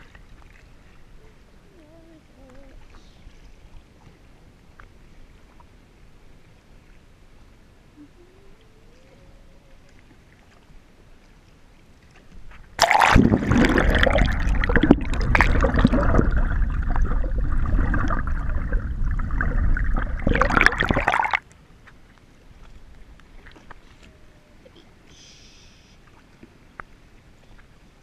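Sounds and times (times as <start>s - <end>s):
water gurgling underwater: 12.8s - 21.4s.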